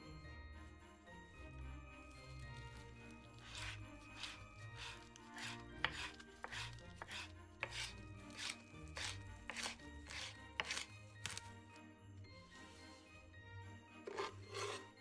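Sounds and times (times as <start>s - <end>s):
knife chopping on wooden board: 3.5s - 11.4s, 14.1s - 14.8s.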